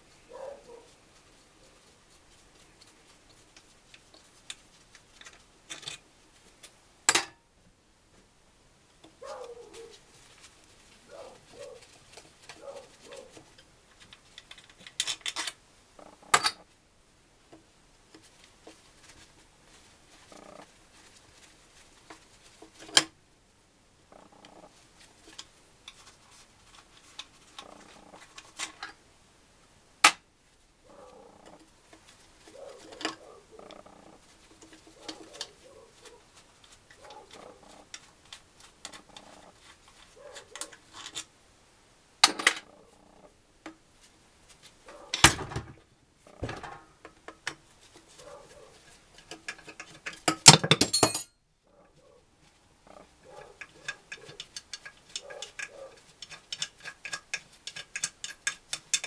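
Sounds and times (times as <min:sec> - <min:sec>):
metal tools clinking on engine casing: 0:49.8 - 0:51.4.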